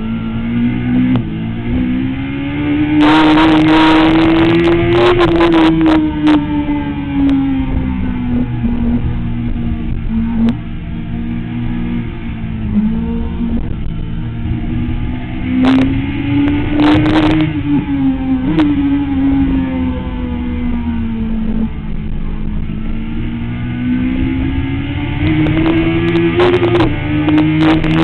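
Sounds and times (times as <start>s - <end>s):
motorcycle engine at high revs: 0.0s - 28.0s
engine crackles: 24.3s - 28.0s.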